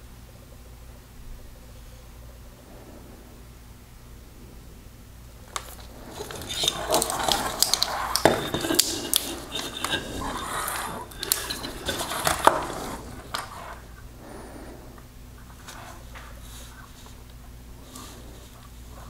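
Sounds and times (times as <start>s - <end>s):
plastic connectors and wires rustling: 5.5s - 13.9s.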